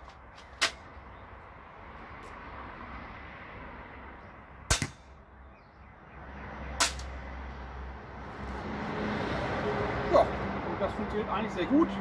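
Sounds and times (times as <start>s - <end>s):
crossbow shots snapping: 4.7s - 5.1s.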